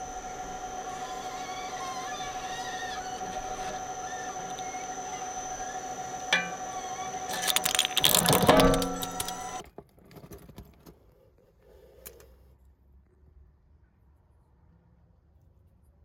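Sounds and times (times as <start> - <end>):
shredder humming: 0.0 - 9.6
toy cars cracking and crunching: 0.0 - 10.9
sharp click: 6.2 - 9.6.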